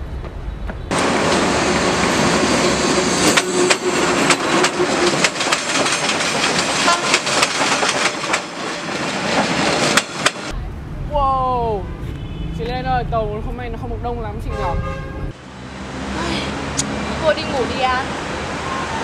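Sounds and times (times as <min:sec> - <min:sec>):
train rumbling past: 0:00.0 - 0:19.0
wheels clacking over rail joints: 0:00.9 - 0:10.5.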